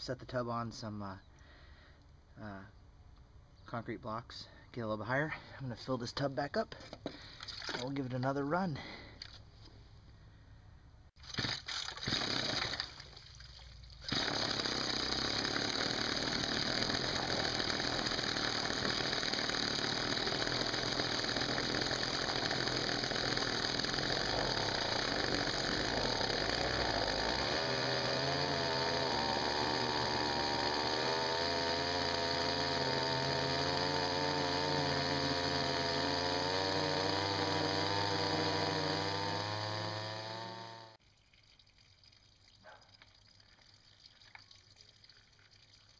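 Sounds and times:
two-stroke engine running: 14.1 - 41.0.

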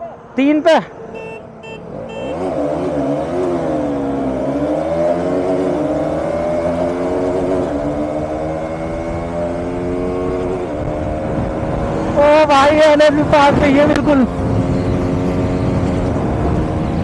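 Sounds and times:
motorcycle engine accelerating: 1.2 - 17.0
wind rush: 7.8 - 17.0.

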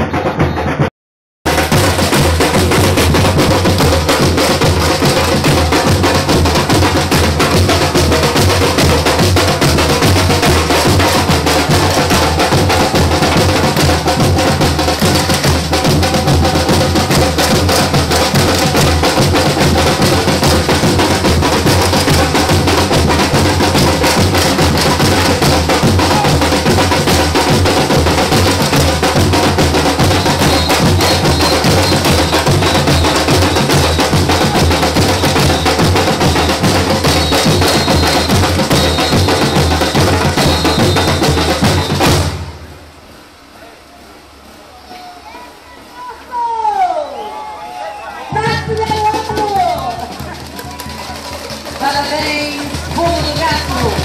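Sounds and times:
deep bass drums beating: 1.5 - 42.5
sharp higher percussion strokes: 1.5 - 42.7.

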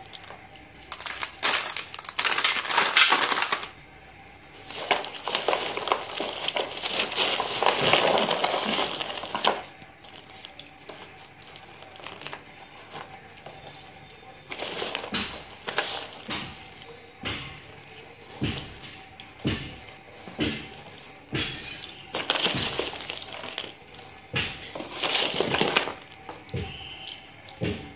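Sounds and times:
pencil sticks clattering in box: 0.0 - 3.8, 4.6 - 17.0, 21.7 - 27.6.

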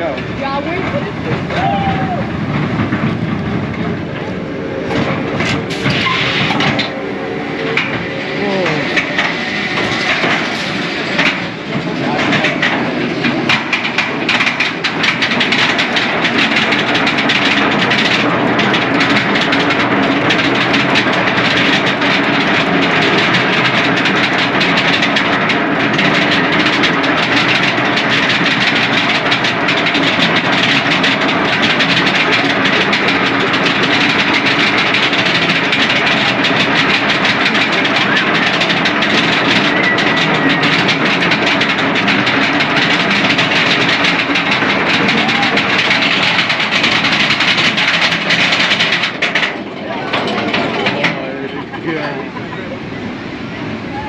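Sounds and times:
roller coaster lift clatter: 0.0 - 54.0
rapid ticking: 2.5 - 49.6.

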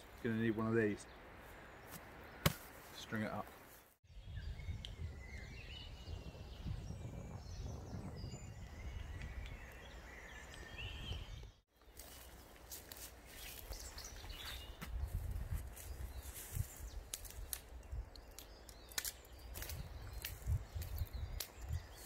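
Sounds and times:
faint birdsong: 0.0 - 22.0
footsteps through undergrowth: 1.4 - 4.0, 11.7 - 17.7.

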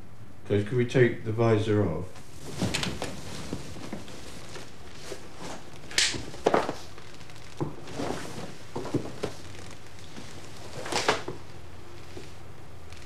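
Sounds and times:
tape hiss: 0.0 - 13.0
fabric swish: 2.2 - 7.0, 7.8 - 11.1.

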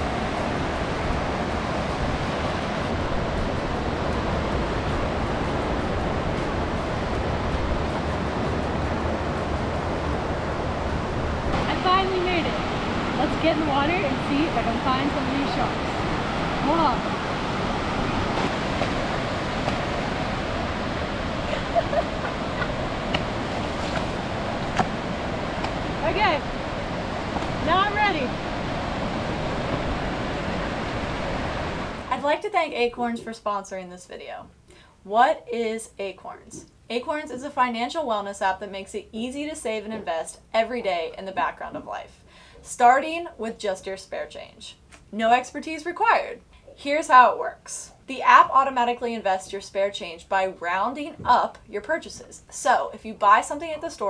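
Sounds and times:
ocean surf on beach: 0.0 - 32.3
wind blowing: 0.0 - 33.2.

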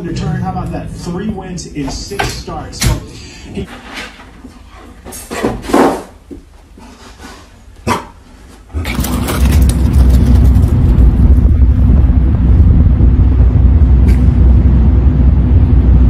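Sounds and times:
loud steady low rumble: 0.0 - 3.6, 8.7 - 16.0
dog barking: 7.8 - 8.2.

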